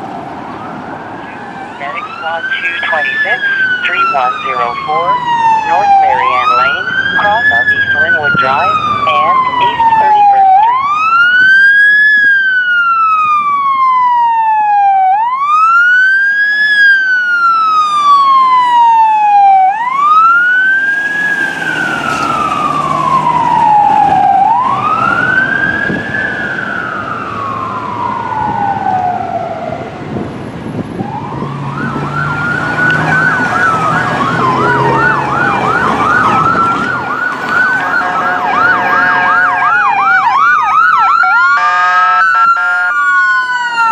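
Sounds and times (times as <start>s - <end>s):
truck engine rumble: 0.0s - 12.8s, 19.7s - 41.5s
ambulance siren yelping: 0.0s - 43.9s
fire engine siren wailing: 0.0s - 43.9s.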